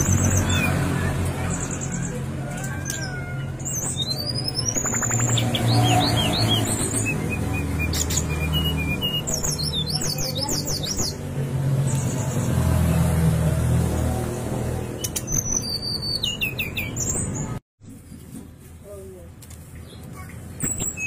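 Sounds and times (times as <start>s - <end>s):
bird singing whistled phrases: 3.1s - 11.2s, 15.0s - 17.2s.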